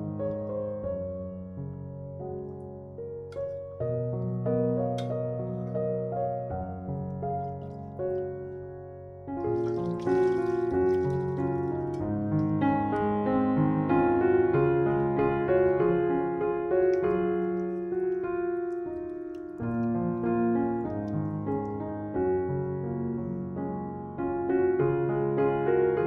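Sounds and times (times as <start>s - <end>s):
slow piano music: 0.0s - 26.0s.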